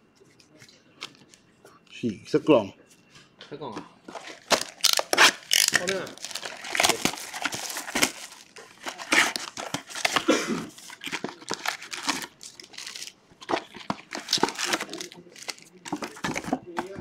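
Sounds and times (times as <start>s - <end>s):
shrink wrap crinkling and tearing: 4.1s - 16.5s.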